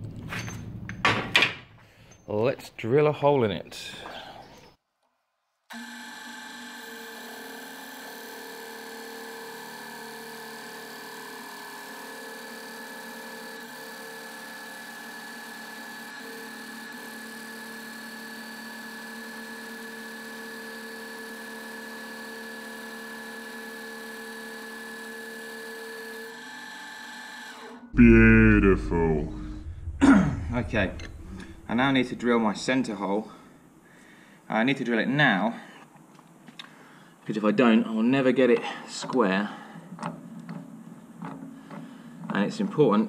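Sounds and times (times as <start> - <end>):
drill press boring into wood: 5.7 - 27.7.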